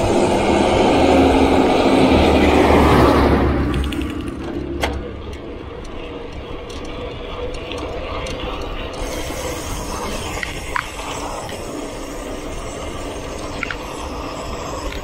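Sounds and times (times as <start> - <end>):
heavy truck passing: 0.0 - 5.7
bicycle freewheel ticking: 5.2 - 15.0.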